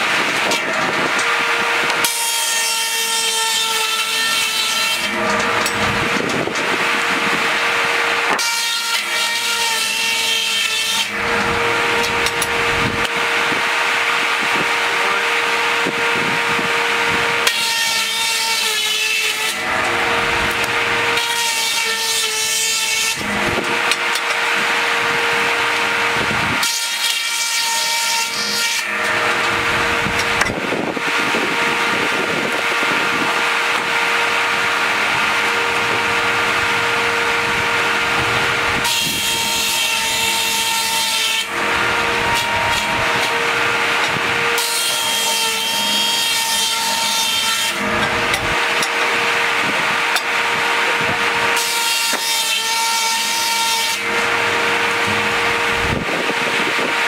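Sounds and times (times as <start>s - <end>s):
circular saw blade humming: 0.0s - 57.0s
saw ripping boards: 0.0s - 57.0s.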